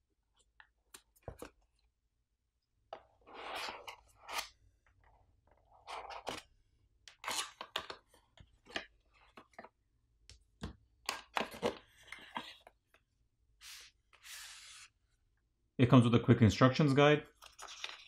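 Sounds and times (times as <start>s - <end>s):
cardboard sliding rub: 13.6s - 14.9s.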